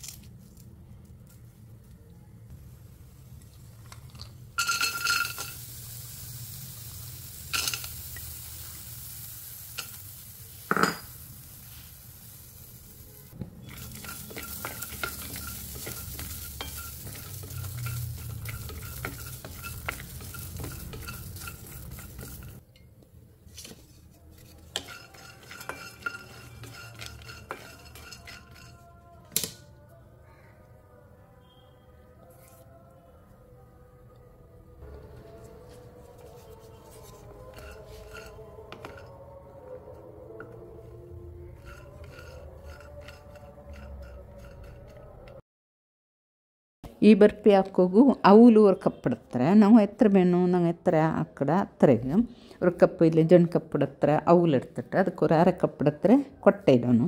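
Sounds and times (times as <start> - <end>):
nuts clattering into steel pan: 4.6 - 5.6
nuts scraping and rattling in pan: 4.6 - 5.7, 13.6 - 22.6, 24.4 - 28.8, 37.2 - 39.2, 41.6 - 45.2.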